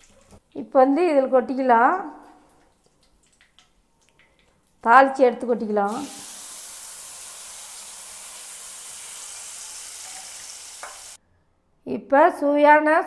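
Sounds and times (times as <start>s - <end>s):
hot oil sizzling: 5.9s - 11.2s.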